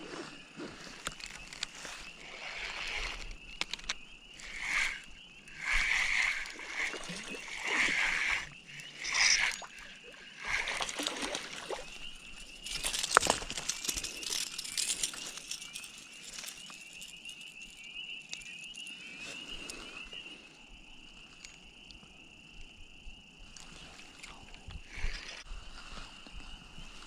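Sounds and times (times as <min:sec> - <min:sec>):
fish flopping in dry grass: 0:10.4 - 0:16.9.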